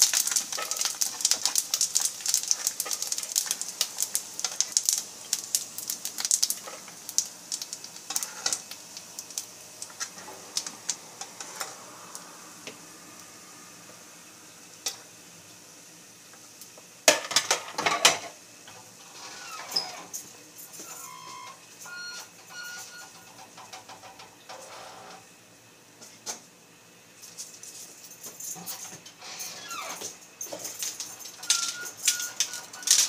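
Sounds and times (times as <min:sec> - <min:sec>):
dry macaroni rattling: 0:00.0 - 0:08.7.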